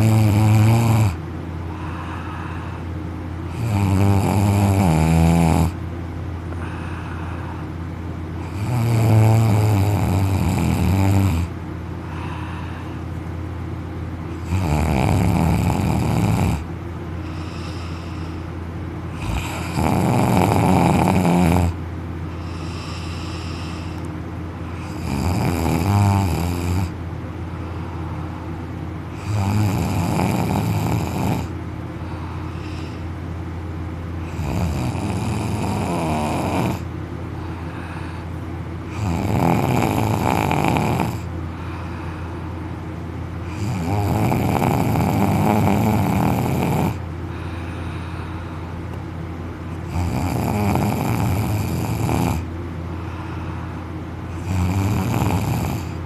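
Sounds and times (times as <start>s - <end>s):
man snoring: 0.0s - 2.8s, 3.5s - 5.8s, 8.4s - 13.0s, 14.4s - 18.4s, 19.1s - 24.1s, 24.7s - 27.0s, 29.1s - 33.1s, 34.2s - 36.9s, 37.5s - 42.3s, 43.4s - 48.7s, 49.7s - 56.0s
steady low hum: 0.0s - 56.0s.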